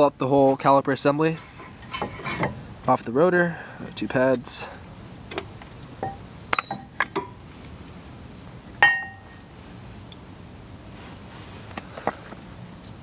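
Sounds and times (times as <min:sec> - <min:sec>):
ringing metallic clink: 0:06.5 - 0:06.9.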